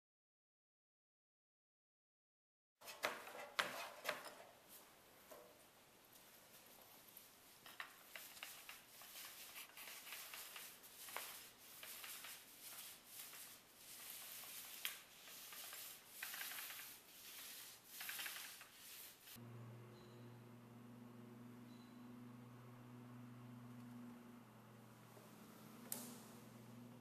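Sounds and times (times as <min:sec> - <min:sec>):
paint roller swishing: 0:06.1 - 0:19.4
steady low hum: 0:19.4 - 0:27.0
clicks: 0:25.1 - 0:26.8.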